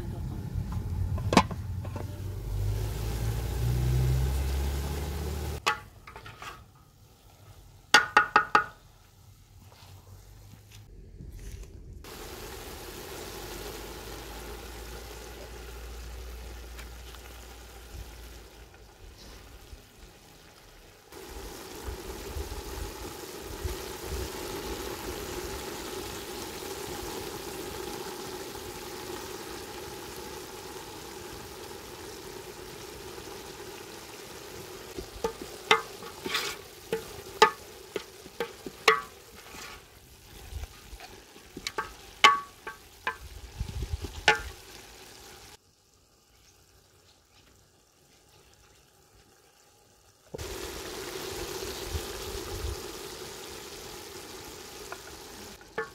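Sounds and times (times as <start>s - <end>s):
vegetables sizzling in oil: 0.0s - 10.5s, 12.0s - 55.9s
wooden spoon scraping metal pot: 5.6s - 6.8s, 35.0s - 42.8s.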